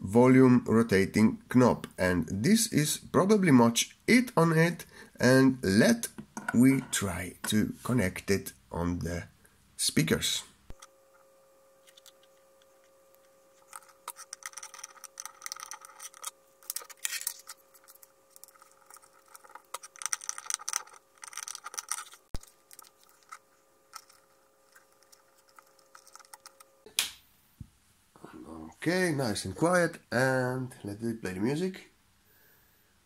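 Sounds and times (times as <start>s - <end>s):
clicks and scrapes of handling wires: 11.8s - 26.8s.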